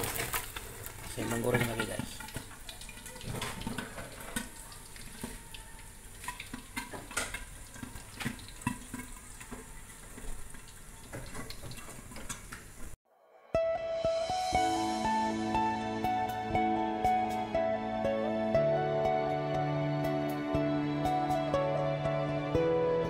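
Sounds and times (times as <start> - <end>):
food sizzling in hot oil: 0.0 - 13.0
oil popping and crackling: 0.0 - 13.0.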